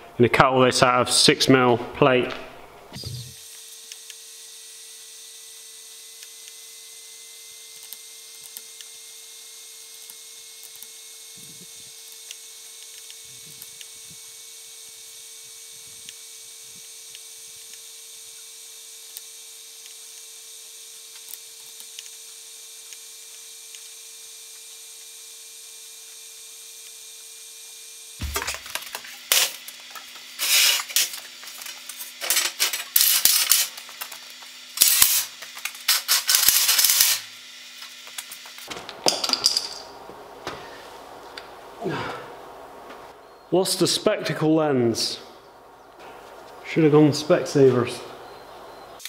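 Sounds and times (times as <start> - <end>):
steady hum: 0.0 - 3.5, 28.2 - 49.0.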